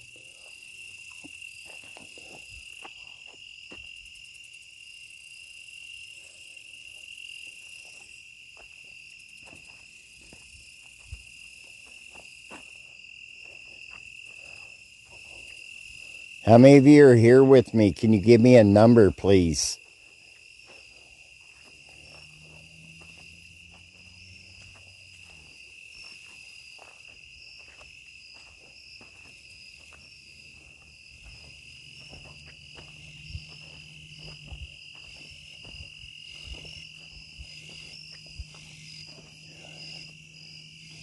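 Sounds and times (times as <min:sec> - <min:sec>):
crickets trilling: 0:00.0 - 0:41.0.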